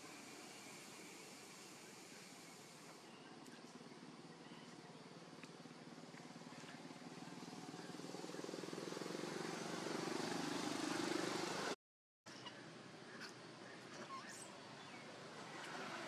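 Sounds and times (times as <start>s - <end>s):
vehicle engine running: 3.6s - 11.8s.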